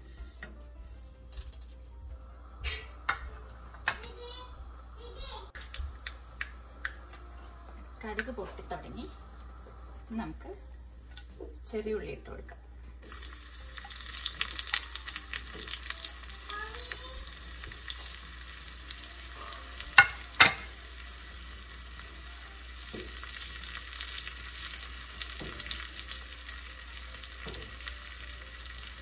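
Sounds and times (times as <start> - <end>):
shallots sizzling in hot oil: 0.0 - 0.6, 5.0 - 12.3, 13.0 - 29.0.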